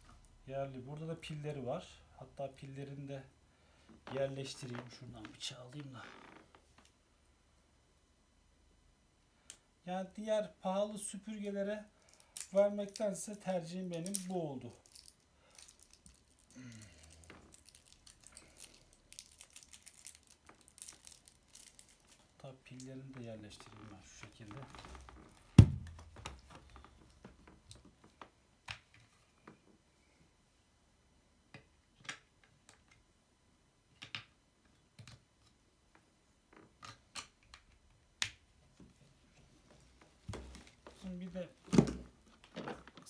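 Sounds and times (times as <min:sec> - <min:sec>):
plastic packaging crinkling: 0:12.0 - 0:22.4.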